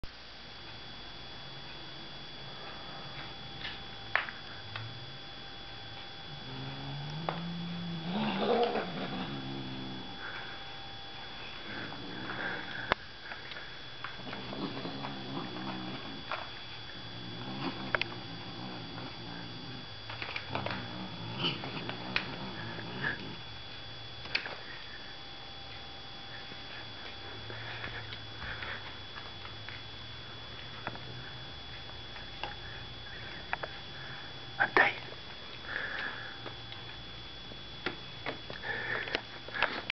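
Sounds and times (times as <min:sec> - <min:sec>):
kitten growling: 0:06.3 - 0:10.4, 0:11.6 - 0:13.0, 0:14.2 - 0:23.5.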